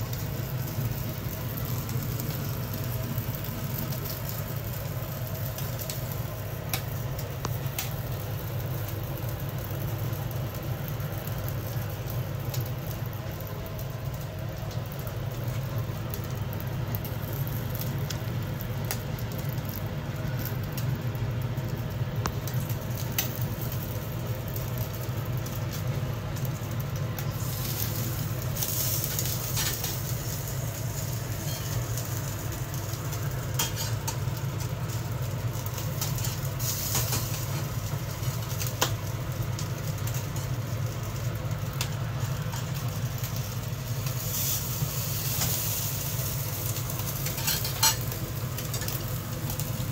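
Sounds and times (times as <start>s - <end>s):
fish crackling on grill: 0.0s - 49.9s
gas burner rumbling and hissing: 0.0s - 49.9s.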